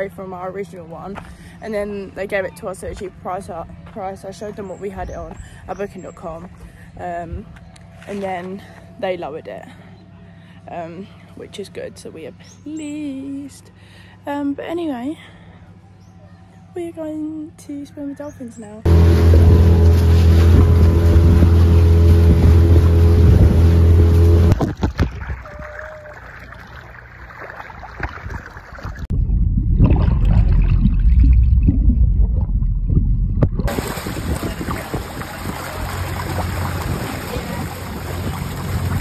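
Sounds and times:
boat engine humming: 0:00.0 - 0:39.0
muffled underwater rumble: 0:18.9 - 0:27.1, 0:28.4 - 0:39.0
water rushing and splashing: 0:18.9 - 0:29.1, 0:33.4 - 0:39.0.

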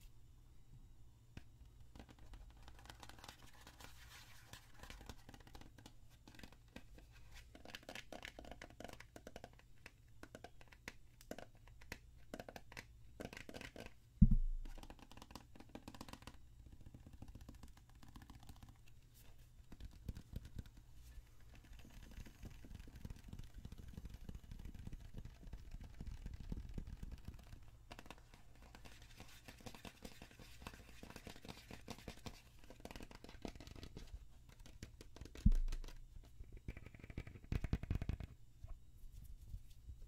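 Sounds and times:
loud thump: 0:14.2 - 0:14.6.

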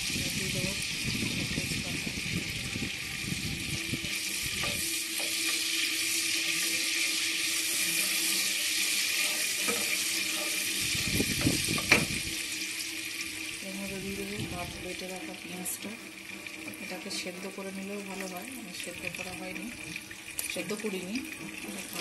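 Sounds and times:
oil sizzling: 0:00.0 - 0:22.0
wooden spatula knocking and scraping: 0:11.4 - 0:12.1.

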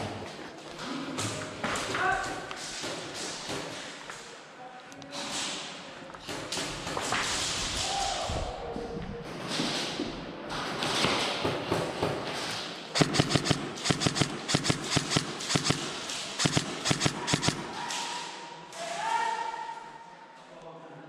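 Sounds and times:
airsoft guns firing: 0:13.0 - 0:18.1.

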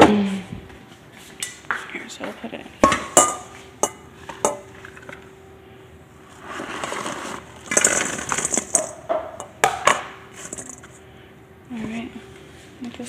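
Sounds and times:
clinks against plate and metal bowl: 0:02.8 - 0:04.6
fried chicken rattling into metal bowl: 0:07.7 - 0:09.0.

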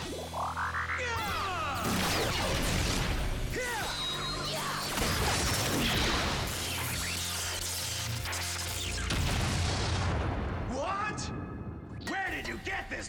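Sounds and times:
background music: 0:00.0 - 0:09.7
electronic energy blast zaps: 0:01.8 - 0:09.9.

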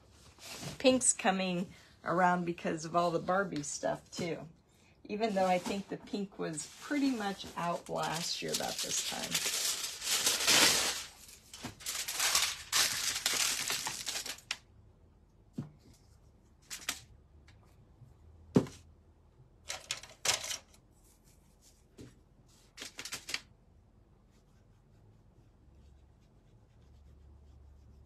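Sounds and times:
aluminium foil crinkling and tearing: 0:07.0 - 0:14.6.

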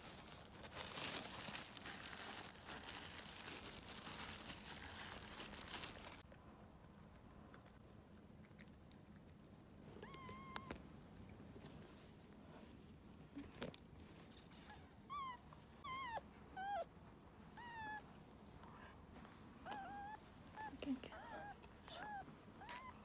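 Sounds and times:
puppy squeaking: 0:10.0 - 0:10.7, 0:14.6 - 0:16.9, 0:19.6 - 0:23.0.

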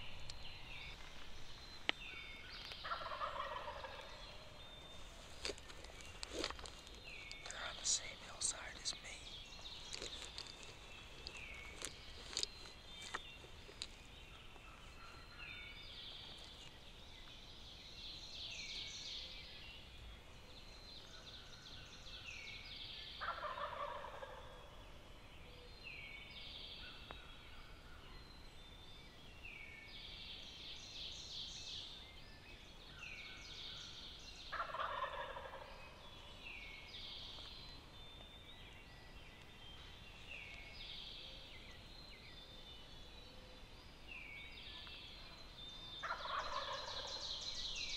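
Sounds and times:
songbirds singing: 0:00.0 - 0:47.9
turkeys gobbling: 0:02.8 - 0:04.1, 0:23.2 - 0:24.6, 0:34.5 - 0:35.7, 0:46.0 - 0:47.1.

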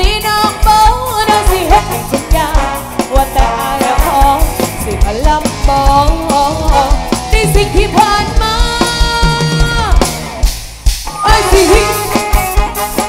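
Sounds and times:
woman singing: 0:00.0 - 0:10.1, 0:11.2 - 0:12.4
live pop band playing: 0:00.0 - 0:13.0.

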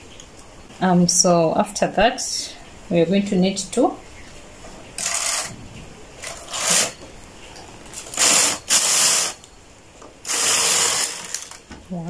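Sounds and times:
knitting machine carriage sweeping: 0:05.0 - 0:05.5, 0:06.2 - 0:07.0.

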